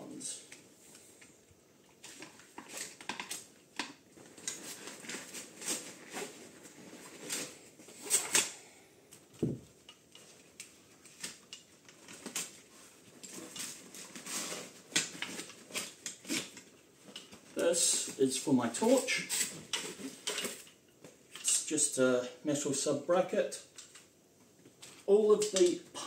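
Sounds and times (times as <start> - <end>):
dull thump: 9.4 - 9.7
plastic buckles and metal fittings clattering: 9.4 - 21.7, 24.8 - 26.0.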